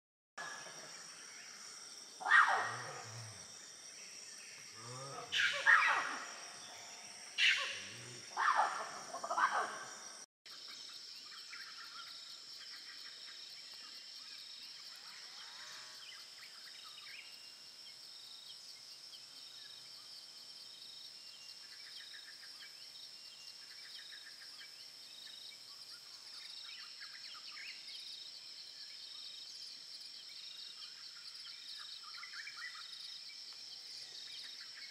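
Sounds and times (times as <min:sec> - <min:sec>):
loud animal calls falling in pitch: 0:02.2 - 0:03.0.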